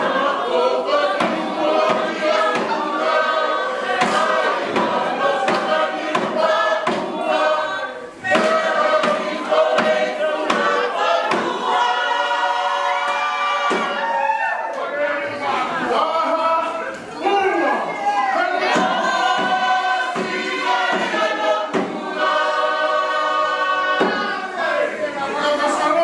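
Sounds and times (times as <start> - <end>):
sharp rhythmic beat: 0.0 - 14.0, 18.6 - 24.5
group singing in harmony: 0.0 - 26.0.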